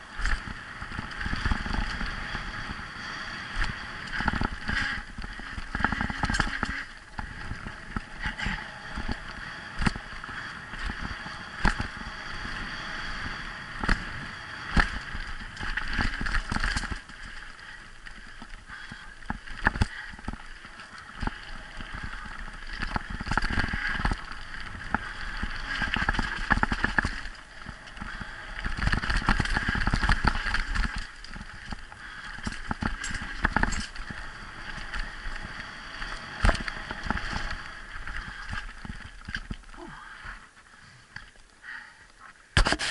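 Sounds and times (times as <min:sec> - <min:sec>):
bike clattering over rough ground: 0:00.0 - 0:02.8, 0:03.5 - 0:12.1, 0:13.8 - 0:39.8, 0:42.5 - 0:42.9
bike tyres crunching over gravel: 0:00.0 - 0:42.9
steady rushing noise: 0:00.0 - 0:42.9.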